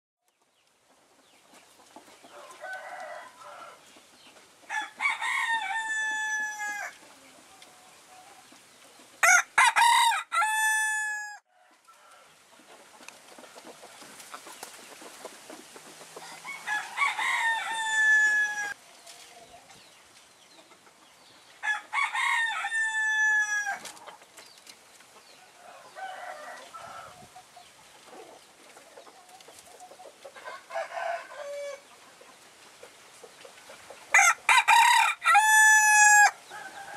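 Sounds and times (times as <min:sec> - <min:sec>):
roosters crowing: 0:02.3 - 0:03.9, 0:04.6 - 0:07.0, 0:09.2 - 0:12.5, 0:16.1 - 0:18.8, 0:21.5 - 0:24.0, 0:25.4 - 0:27.5, 0:30.3 - 0:31.9, 0:34.1 - 0:36.9.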